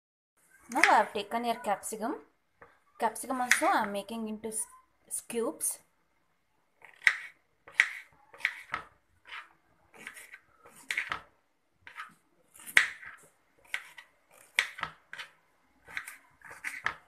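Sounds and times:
knife slicing pepper on board: 0:06.8 - 0:11.2, 0:11.8 - 0:17.0.

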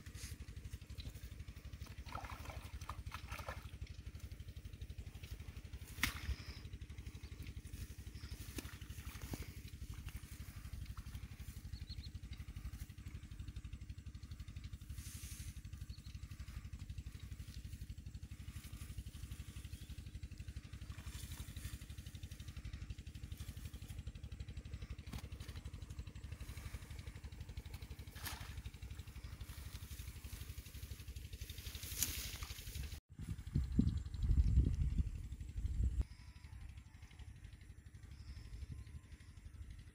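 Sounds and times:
engine running drone: 0:00.0 - 0:39.9
faint rustles: 0:04.2 - 0:33.5.

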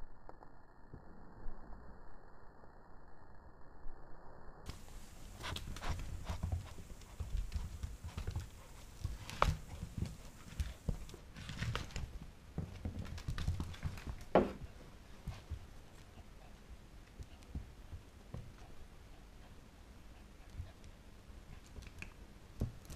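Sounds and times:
knocks and thumps: 0:12.6 - 0:14.7.

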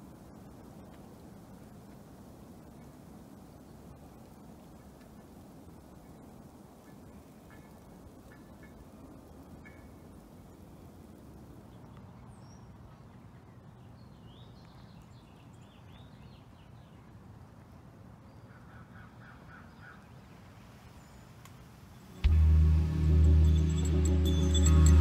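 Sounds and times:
small birds chirping: 0:11.6 - 0:20.0.

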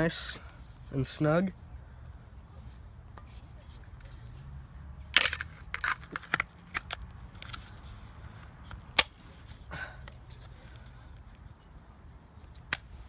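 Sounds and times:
plastic clicks and rattles: 0:05.2 - 0:07.7.

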